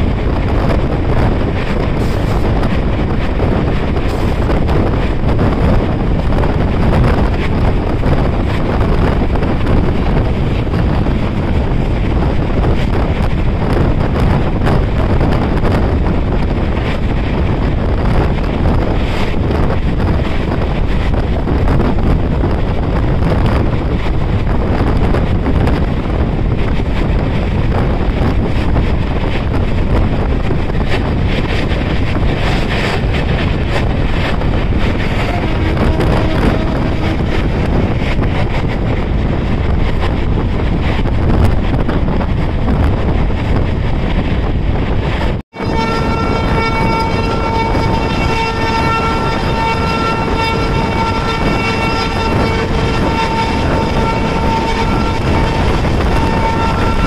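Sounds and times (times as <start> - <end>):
train running noise: 0.0 - 57.0
wind buffeting microphone: 0.0 - 57.0
train horn: 34.9 - 38.2, 45.5 - 57.0.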